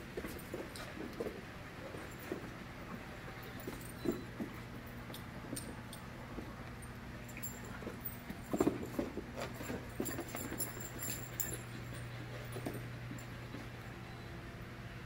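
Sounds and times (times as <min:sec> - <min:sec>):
puppies scuffling: 0:00.0 - 0:14.1.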